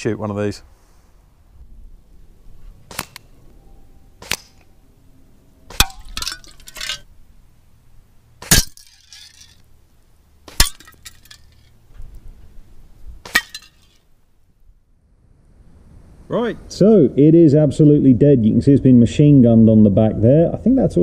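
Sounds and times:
air rifle shots: 2.8s - 3.5s, 4.2s - 4.7s
metal bottle clattering: 5.7s - 7.1s, 8.4s - 9.6s, 10.5s - 11.7s, 13.3s - 14.0s.

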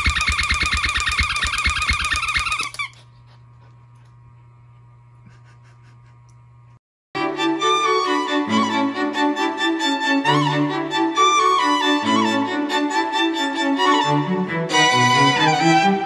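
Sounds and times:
fast-pulsing tone with thuds: 0.0s - 2.6s
violin melody: 7.2s - 16.0s.

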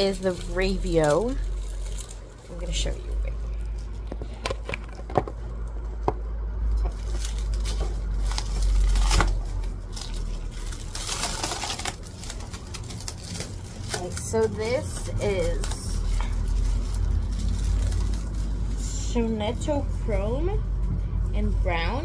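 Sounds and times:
rustling: 0.0s - 5.7s, 6.7s - 22.0s
low handling rumble: 0.0s - 22.0s.

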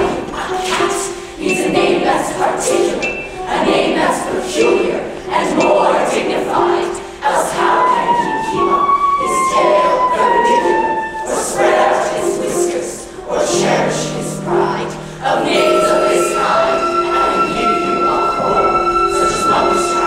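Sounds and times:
large chorus singing: 0.0s - 20.0s
short repeated accompaniment notes: 0.0s - 20.0s.

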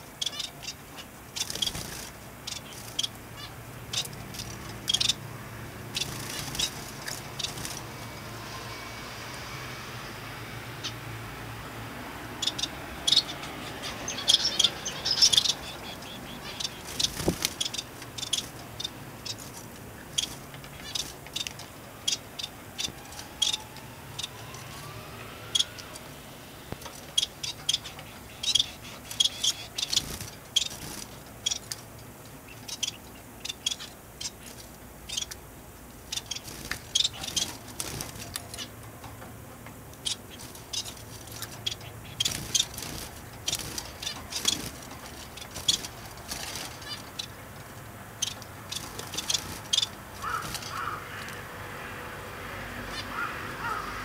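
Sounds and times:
finches chirping: 0.0s - 8.0s, 12.3s - 26.1s, 26.8s - 31.8s, 32.4s - 35.4s, 36.1s - 38.8s, 40.0s - 47.4s, 48.1s - 51.4s.

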